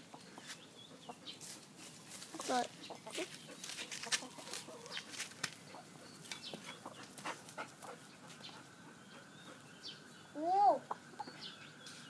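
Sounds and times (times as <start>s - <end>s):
scratchy clicks and dirt rustles: 1.4s - 5.6s.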